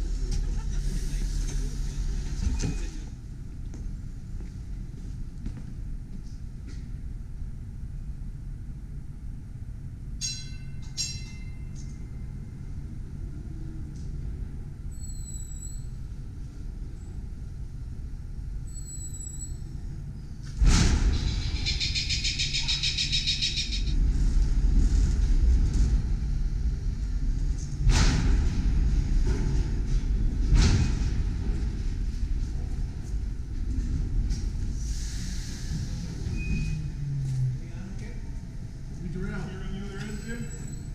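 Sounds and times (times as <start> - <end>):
low background hum: 0.0 - 40.9
streetcar rumbling on rails: 0.0 - 40.9
high-pitched ringing: 10.2 - 12.3
loud metallic clatter: 20.5 - 32.8.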